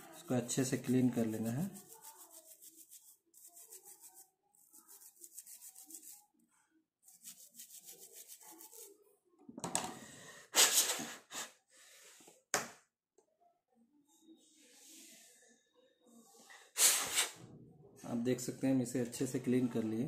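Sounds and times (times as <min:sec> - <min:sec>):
small brush scrubbing: 0:00.0 - 0:06.4, 0:07.0 - 0:09.0.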